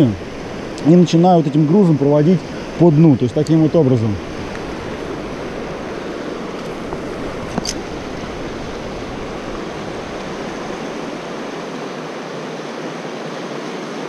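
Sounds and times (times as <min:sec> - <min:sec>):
river rushing over riffles: 0:00.0 - 0:14.0.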